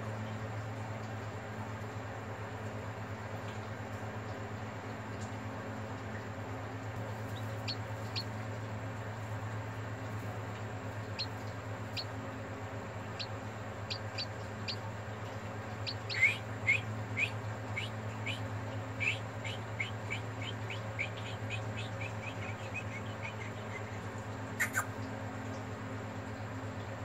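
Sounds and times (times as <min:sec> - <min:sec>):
steady low hum: 0:00.0 - 0:27.0
chicks peeping: 0:07.0 - 0:08.4, 0:10.2 - 0:24.9.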